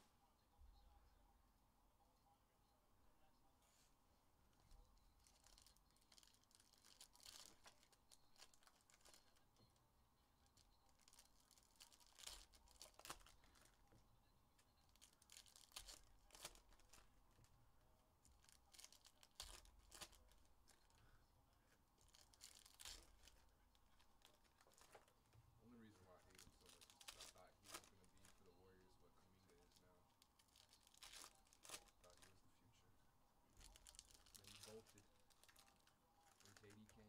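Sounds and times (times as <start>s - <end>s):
foil packs tearing and crinkling: 5.2s - 9.4s, 11.0s - 13.7s, 14.9s - 17.1s, 18.4s - 20.4s, 22.1s - 23.4s, 26.2s - 28.4s, 30.4s - 32.3s, 33.6s - 37.0s.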